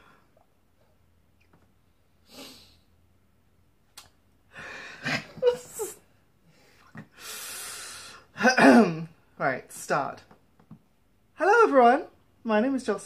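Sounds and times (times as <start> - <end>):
person laughing wheezily: 4.7 - 6.0
short breath: 6.4 - 8.3.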